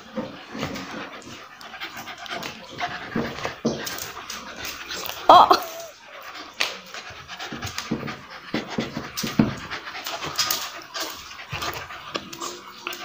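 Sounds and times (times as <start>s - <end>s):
dogs panting hard: 0.0s - 13.0s
dogs scuffling: 0.0s - 13.0s.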